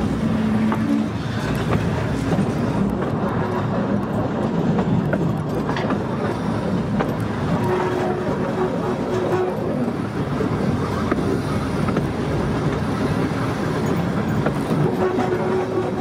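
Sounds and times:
wheels rumbling on rail: 0.0s - 16.0s
clicks over rail joints: 0.6s - 10.0s.

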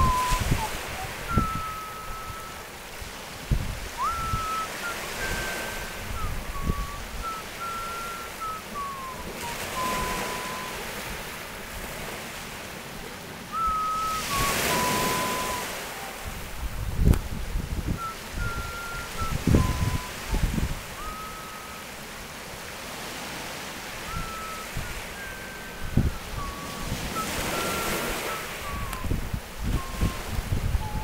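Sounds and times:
whistled tune: 0.0s - 2.7s, 4.0s - 10.9s, 13.5s - 16.4s, 17.9s - 22.0s, 24.0s - 31.0s
surf on pebbly shore: 0.0s - 31.0s
wind on microphone: 0.0s - 31.0s.

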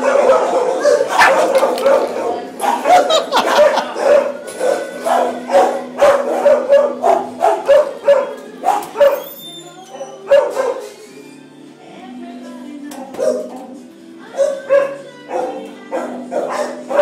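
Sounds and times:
dog barking rapidly: 0.0s - 9.2s, 10.3s - 10.8s, 13.2s - 13.6s, 14.4s - 17.0s.

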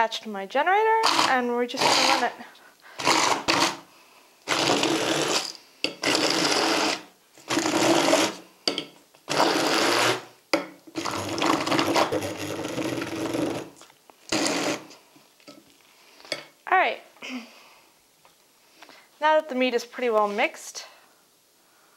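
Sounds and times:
immersion blender pureeing meat: 1.0s - 2.3s, 3.0s - 8.4s, 9.3s - 10.3s, 11.0s - 15.0s.

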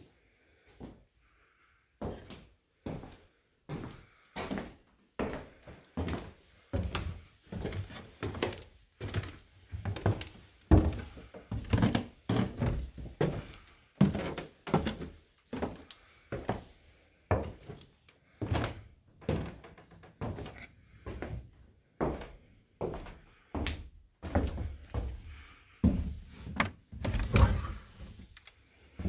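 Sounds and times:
footsteps on wooden stairs: 22.0s - 28.3s.

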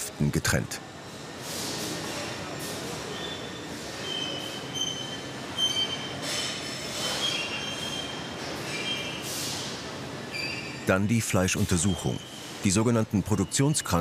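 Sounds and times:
conveyor trolleys squealing: 0.9s - 14.0s.

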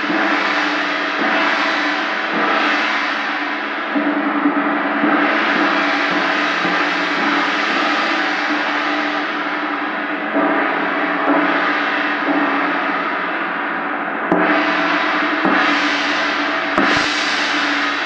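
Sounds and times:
gong struck with soft mallet: 14.2s - 17.8s.

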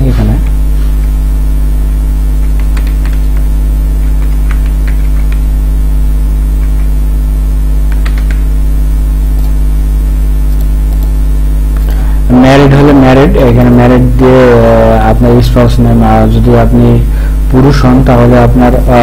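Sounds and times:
electrical mains hum: 0.0s - 19.0s
keyboard typing: 2.3s - 5.7s, 6.5s - 7.0s, 7.8s - 8.5s, 9.3s - 9.6s, 10.5s - 11.2s
mouse clicks: 10.5s - 11.9s.

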